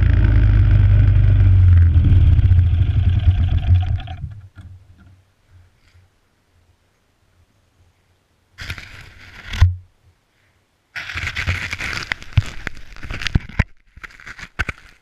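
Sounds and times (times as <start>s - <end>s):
rubbing and clicks: 8.6s - 9.7s, 11.0s - 15.0s
rustling against microphone: 8.6s - 9.8s, 10.4s - 15.0s.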